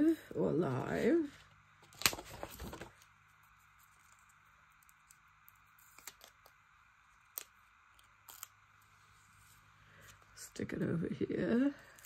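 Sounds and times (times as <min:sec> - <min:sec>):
paper rustling: 0:01.3 - 0:03.1.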